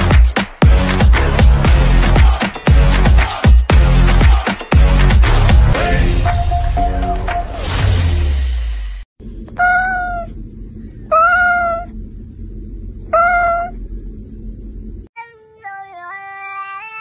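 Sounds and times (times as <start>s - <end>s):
cat meowing: 9.5s - 10.4s, 11.1s - 11.9s, 13.0s - 13.8s.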